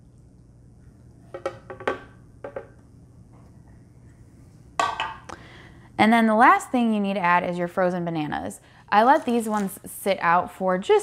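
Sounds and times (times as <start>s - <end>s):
measuring cup knocking: 1.4s - 2.7s.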